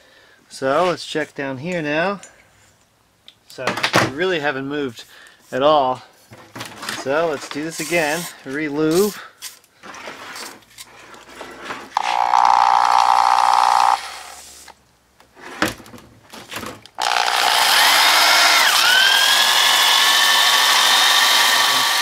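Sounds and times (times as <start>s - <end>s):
hand drill whining with scrubbing: 12.0s - 14.7s, 17.0s - 22.0s.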